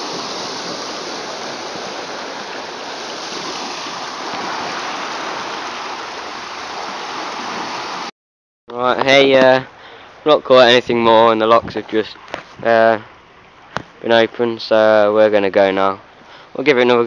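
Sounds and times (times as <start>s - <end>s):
water rushing and churning: 0.0s - 8.1s.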